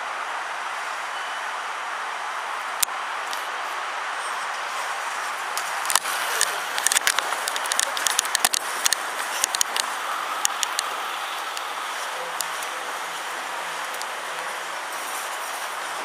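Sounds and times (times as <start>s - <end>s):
steady rushing noise: 0.0s - 16.0s
sharp clicks and knocks: 5.6s - 10.9s.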